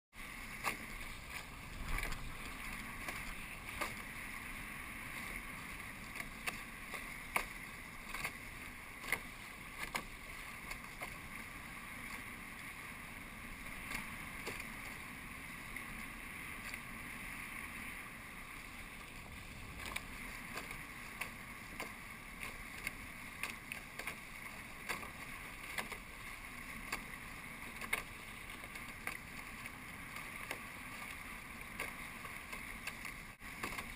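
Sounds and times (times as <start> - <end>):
water rushing along hulls: 0.2 - 33.9
wind on microphone: 0.8 - 4.6, 19.1 - 20.3.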